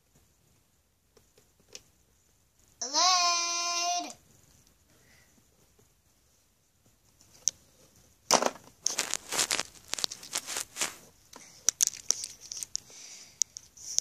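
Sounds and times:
plush toys rustling and scraping: 0:05.5 - 0:12.8.

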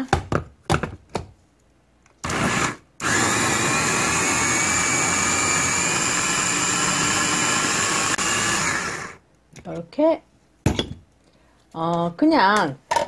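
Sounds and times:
food chopper motor whining: 0:02.2 - 0:09.2.

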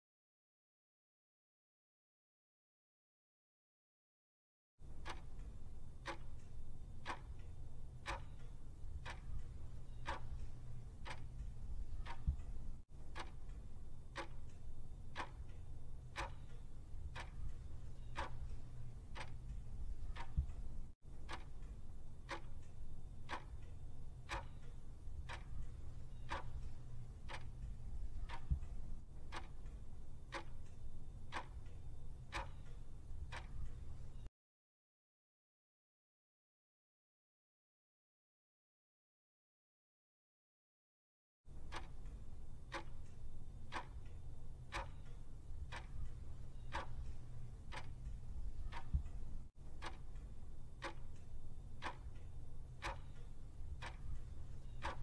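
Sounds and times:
clock ticking: 0:04.8 - 0:34.3, 0:41.5 - 0:55.0
low steady hum: 0:04.8 - 0:34.3, 0:41.5 - 0:55.0.

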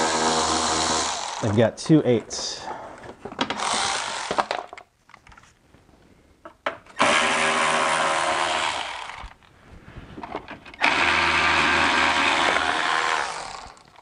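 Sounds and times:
power ratchet running: 0:00.0 - 0:01.4, 0:03.6 - 0:04.5, 0:07.0 - 0:09.3, 0:10.8 - 0:14.0.

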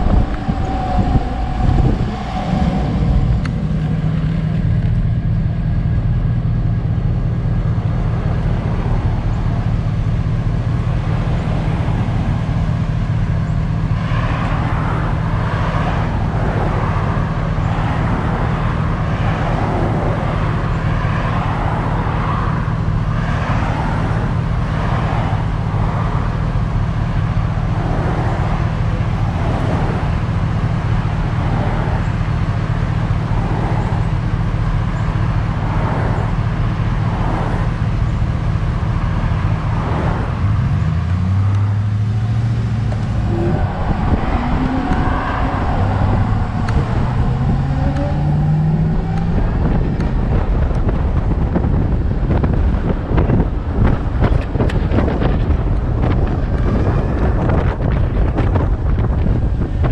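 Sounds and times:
truck engine idling: 0:00.0 - 0:23.2
traffic noise: 0:00.0 - 0:59.9.

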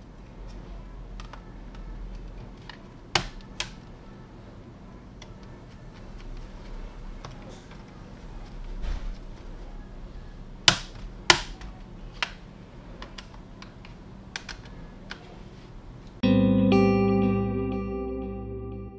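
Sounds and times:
distorted electric guitar music: 0:16.2 - 0:18.9.

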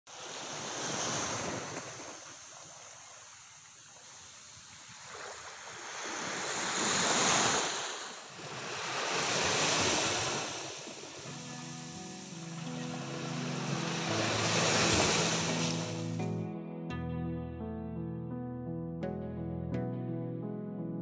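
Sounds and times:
surf breaking over rocks: 0:05.0 - 0:16.2.

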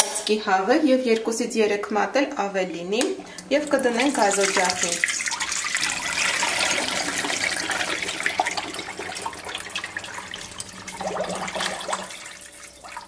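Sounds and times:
water pouring into a pot: 0:03.2 - 0:13.0
water splashing: 0:03.2 - 0:13.0.

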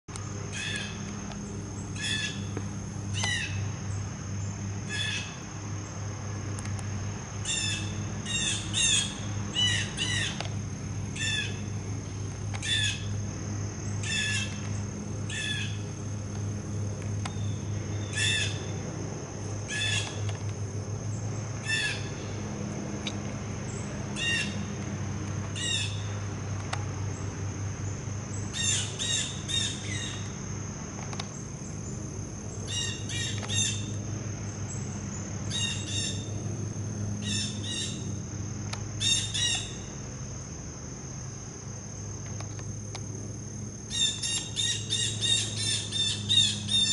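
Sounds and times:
blue jay harsh calls: 0:00.5 - 0:01.1, 0:01.8 - 0:02.5, 0:03.2 - 0:03.6, 0:04.9 - 0:05.4, 0:07.4 - 0:10.4, 0:11.2 - 0:11.6, 0:12.6 - 0:13.1, 0:14.0 - 0:14.6, 0:15.3 - 0:15.8, 0:18.0 - 0:18.7, 0:19.7 - 0:20.2, 0:21.6 - 0:22.2, 0:24.2 - 0:24.6, 0:25.6 - 0:26.1, 0:28.5 - 0:30.2, 0:32.7 - 0:33.9, 0:35.5 - 0:36.3, 0:37.2 - 0:38.1, 0:39.0 - 0:39.8, 0:43.9 - 0:46.9.

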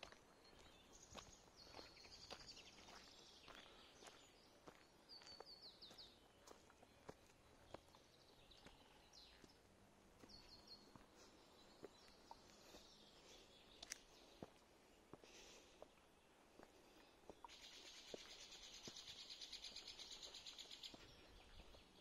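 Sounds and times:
footsteps on a trail: 0:00.0 - 0:22.0
songbirds singing: 0:00.0 - 0:22.0.

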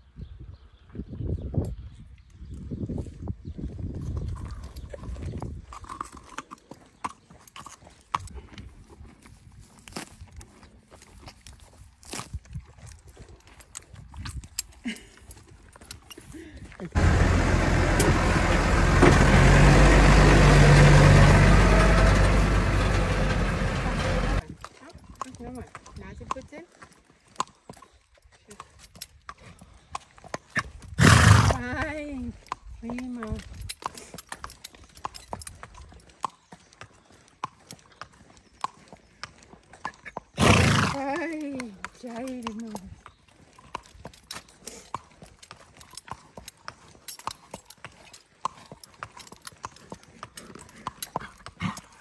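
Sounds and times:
horse hooves on asphalt: 0:02.1 - 0:52.0
tractor diesel engine passing: 0:17.0 - 0:24.4.

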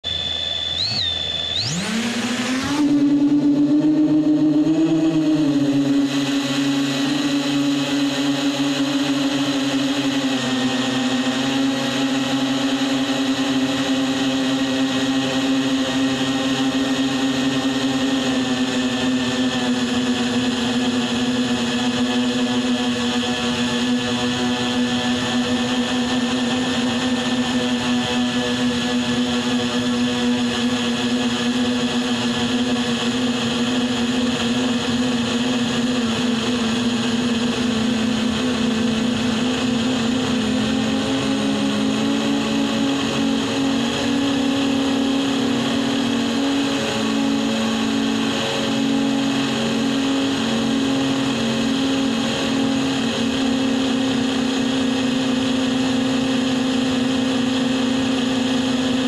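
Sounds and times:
high steady tone: 0:00.0 - 0:10.2
drone motors buzzing: 0:00.0 - 0:59.0.

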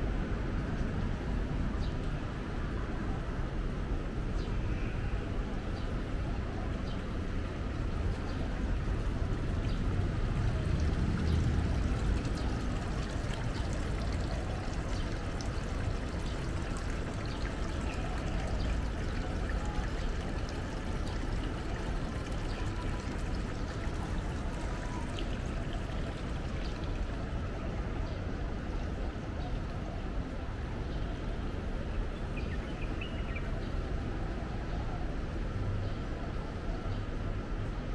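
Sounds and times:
running water rushing: 0:07.2 - 0:30.6.

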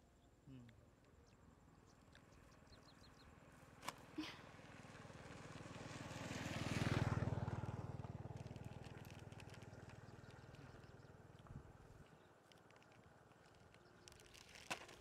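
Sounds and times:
vehicle engine passing by: 0:04.5 - 0:11.1.

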